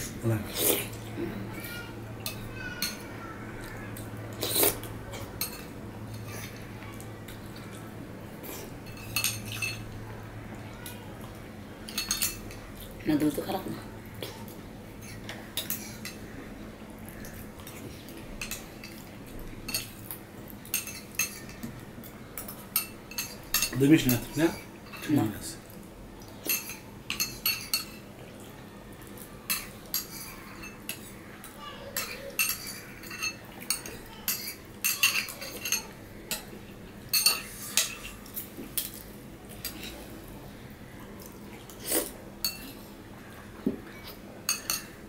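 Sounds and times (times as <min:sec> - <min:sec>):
spoons clinking on ceramic plates: 0:08.8 - 0:09.9, 0:11.9 - 0:12.6, 0:26.5 - 0:28.0, 0:32.0 - 0:36.5, 0:37.1 - 0:38.1, 0:44.5 - 0:45.0.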